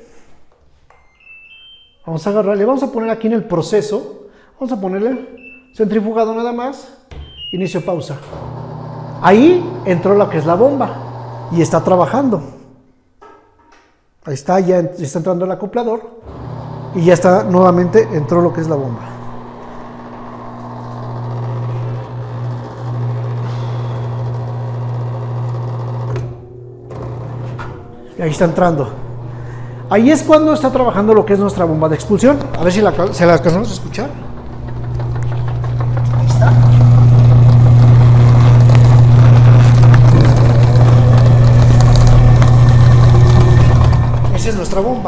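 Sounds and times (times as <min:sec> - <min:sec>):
drain pump humming: 0:07.1 - 0:12.2, 0:16.2 - 0:45.0.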